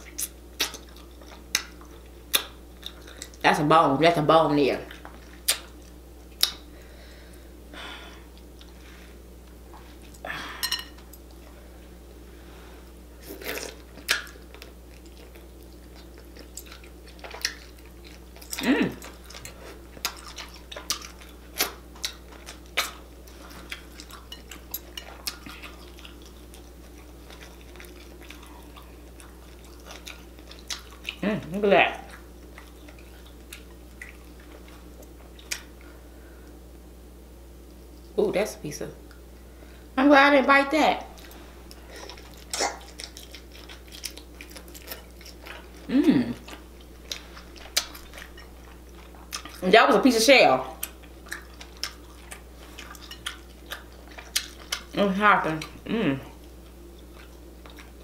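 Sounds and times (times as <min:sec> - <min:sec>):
chewing with wet mouth clicks: 0:00.0 - 0:03.4, 0:04.9 - 0:06.7, 0:13.5 - 0:31.2, 0:32.0 - 0:35.9, 0:41.2 - 0:49.6, 0:50.7 - 0:58.0
person humming: 0:18.6 - 0:19.0, 0:45.8 - 0:46.4, 0:55.8 - 0:56.3.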